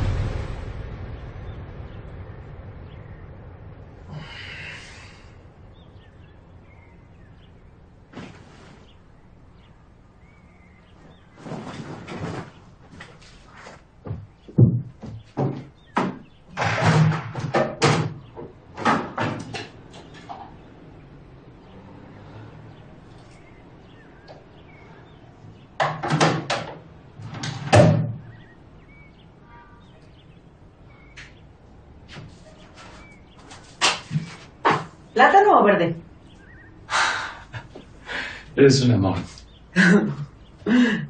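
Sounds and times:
loud thumps: 0.0 - 4.1, 11.4 - 20.4
household knocks and bumps: 14.0 - 20.3, 33.6 - 35.0.

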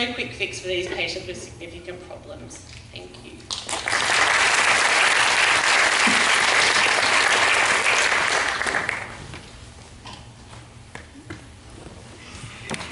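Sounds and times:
audience applauding: 3.6 - 9.2.

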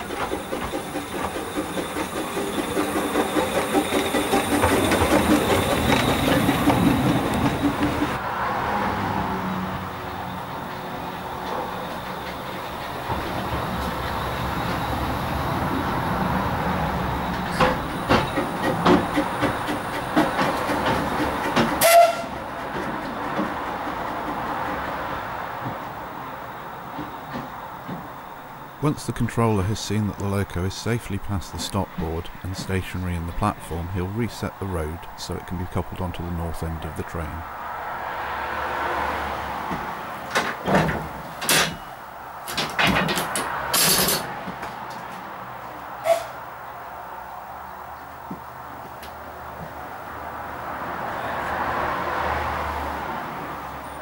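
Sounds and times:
clanks from train wheels: 0.0 - 8.2, 10.3 - 15.1, 17.1 - 34.4, 39.7 - 44.7
steam locomotive rolling: 0.0 - 46.5
steam whistle toot: 21.8 - 22.4.

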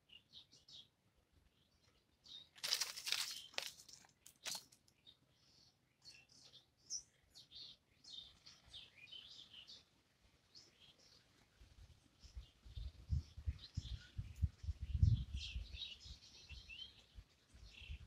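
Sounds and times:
small birds chirping: 0.0 - 18.0
loud rustling crunch: 2.5 - 4.8.

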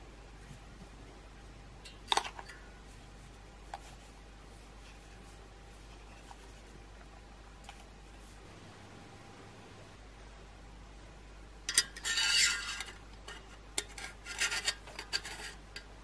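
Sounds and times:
clicks and clinks of metal parts: 11.7 - 15.9.

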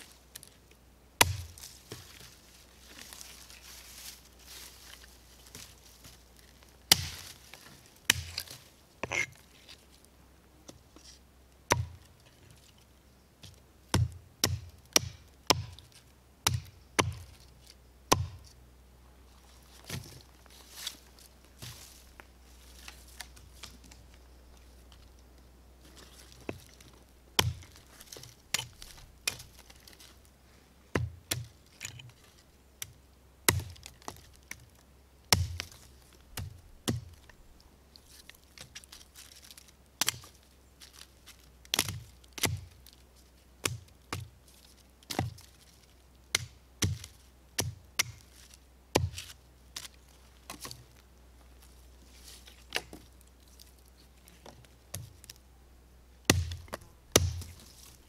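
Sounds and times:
hatchet chopping wood: 1.2 - 2.0, 6.9 - 7.3, 8.1 - 8.6, 11.7 - 12.0, 13.9 - 17.3, 18.1 - 18.4, 27.4 - 29.7, 30.9 - 31.9, 33.5 - 34.3, 35.3 - 37.2, 40.0 - 40.3, 41.7 - 42.8, 43.6 - 44.3, 45.1 - 45.4, 46.3 - 48.2, 48.9 - 49.9, 56.3 - 58.0.

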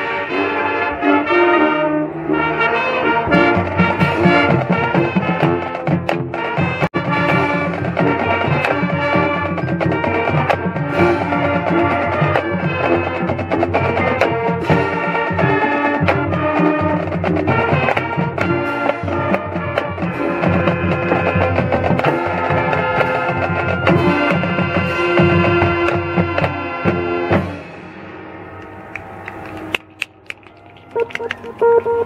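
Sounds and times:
marching band playing: 0.0 - 32.0.

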